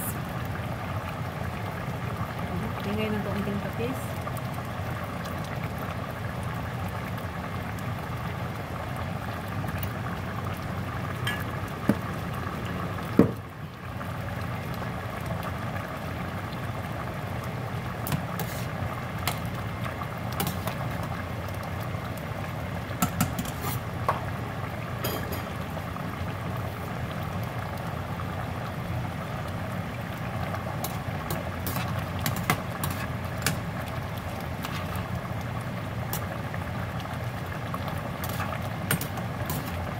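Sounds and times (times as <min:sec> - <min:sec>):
stew simmering in a pot: 0:00.0 - 0:39.9
metal spoon stirring stew: 0:30.8 - 0:33.6.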